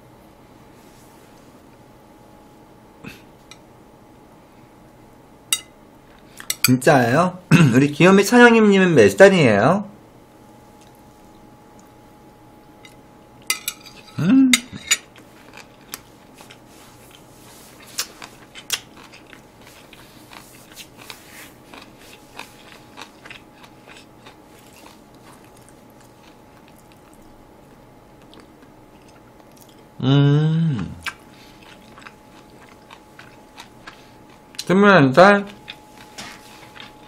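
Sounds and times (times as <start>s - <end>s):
chopsticks and spoon clicking on plates: 5.5s - 5.7s, 6.4s - 6.8s, 12.8s - 15.2s
chewing: 10.8s - 12.0s, 15.0s - 29.9s, 31.0s - 34.7s, 35.5s - 37.0s
short vocal sound: 14.2s - 14.6s, 30.0s - 31.0s.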